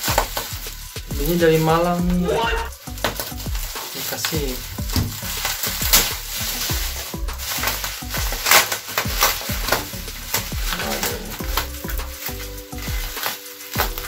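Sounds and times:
background music: 0.0s - 14.0s
plastic packaging crackling: 0.0s - 14.0s.

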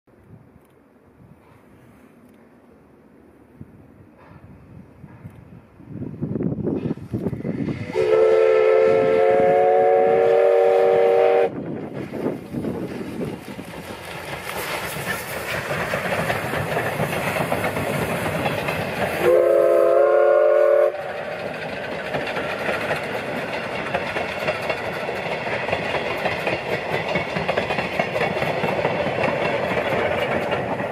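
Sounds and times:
train rolling on rails: 0.1s - 30.9s
steam whistle: 7.8s - 11.6s, 19.2s - 21.2s.

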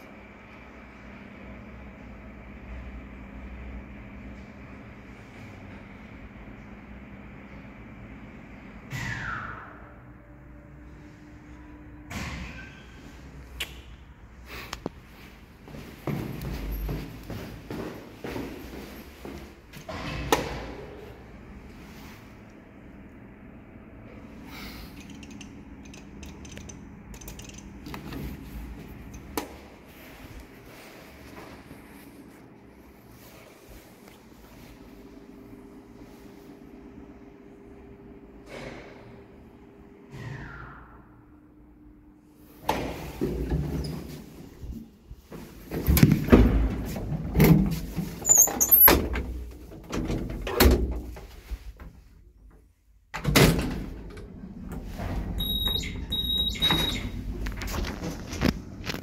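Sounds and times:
steady low hum: 0.0s - 40.2s
elevator rumble: 0.2s - 13.5s, 14.1s - 40.1s, 53.1s - 59.0s
elevator door clicks and clatter: 24.9s - 28.3s, 45.7s - 51.3s, 53.1s - 59.0s
high squeaks: 55.4s - 57.2s.

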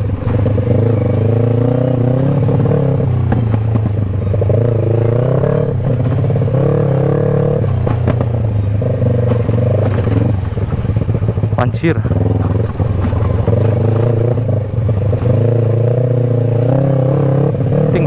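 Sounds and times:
motorcycle engine revving: 0.0s - 18.0s
bike clattering over bumps: 7.6s - 15.8s.

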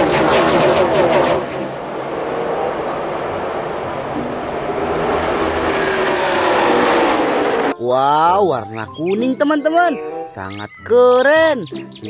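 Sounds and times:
race car engines passing: 0.0s - 8.3s.

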